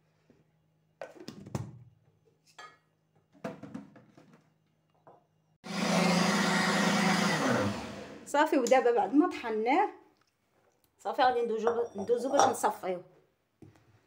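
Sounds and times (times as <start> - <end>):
blender motor whirring: 5.6 - 8.3.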